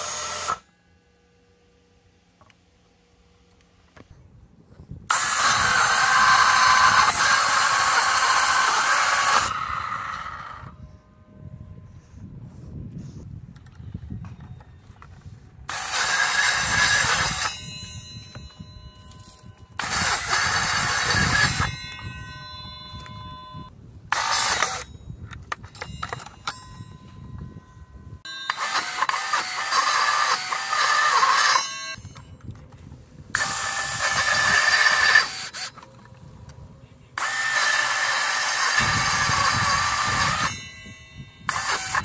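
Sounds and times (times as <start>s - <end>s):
cutter motor whining: 0.0s - 0.7s, 5.1s - 10.8s, 15.7s - 18.5s, 19.8s - 22.1s, 24.1s - 24.9s, 28.4s - 32.3s, 33.3s - 36.0s, 37.2s - 42.0s.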